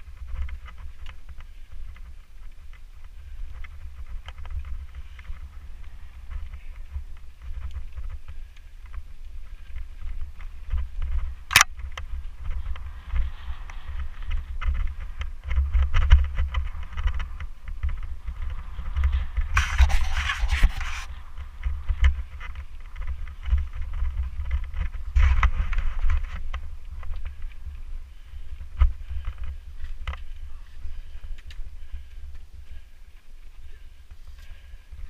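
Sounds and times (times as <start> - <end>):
bike rattling and tyres crunching: 0.0 - 35.0
wind rumble on microphone: 0.0 - 35.0
harsh scraping noise: 19.5 - 21.2.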